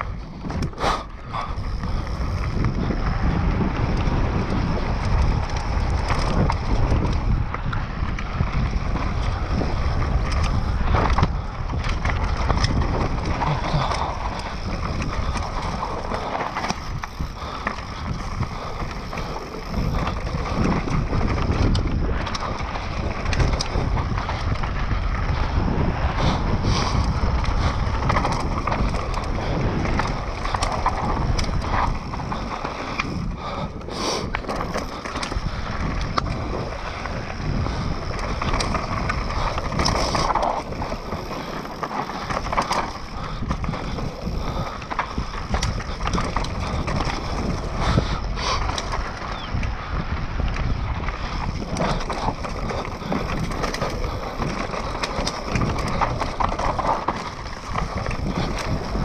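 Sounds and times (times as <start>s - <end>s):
bike rattling over rocks: 0.0s - 59.0s
bike tyre rumble: 0.0s - 59.0s
wind noise on microphone: 0.0s - 59.0s.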